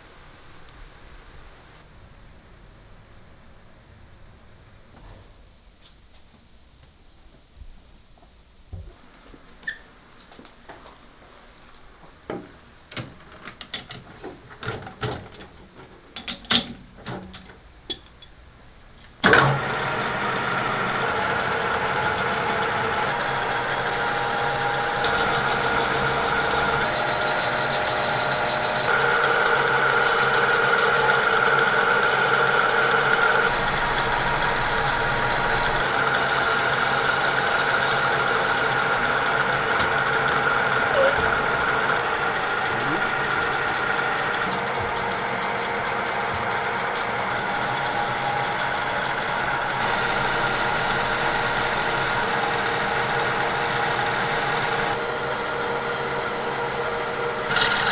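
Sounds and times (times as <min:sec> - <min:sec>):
lathe humming and whining: 0:19.3 - 0:57.9.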